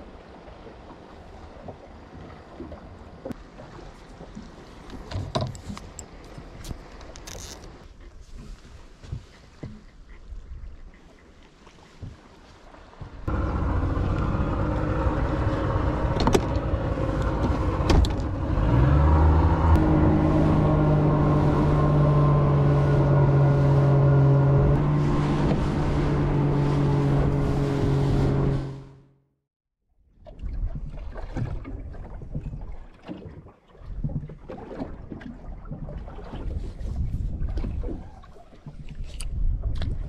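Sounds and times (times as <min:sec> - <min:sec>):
water rush: 0:11.1 - 0:29.1
outboard motor droning: 0:12.7 - 0:29.4
wind buffeting: 0:13.2 - 0:28.8.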